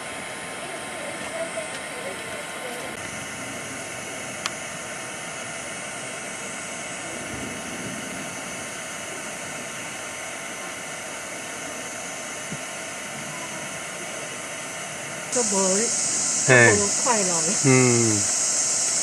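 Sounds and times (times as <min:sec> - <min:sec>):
steady background hiss: 0:15.0 - 0:19.0.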